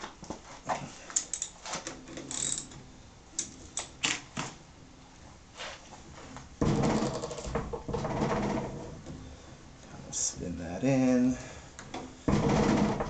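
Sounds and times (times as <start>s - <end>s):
small steel parts clicking: 1.2s - 1.6s.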